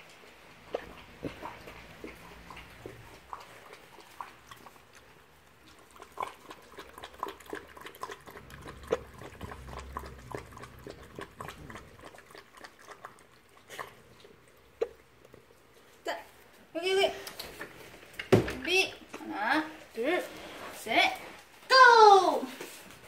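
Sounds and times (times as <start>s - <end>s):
puppy lapping water: 0.0s - 18.2s.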